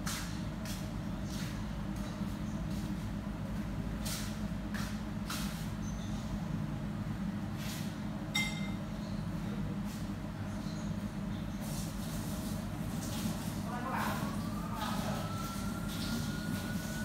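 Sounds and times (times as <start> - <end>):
sharp ringing clink: 8.4 - 8.8.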